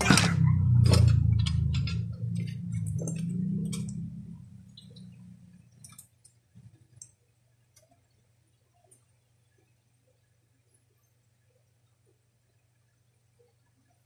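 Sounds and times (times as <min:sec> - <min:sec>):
low hum: 0:00.0 - 0:07.1.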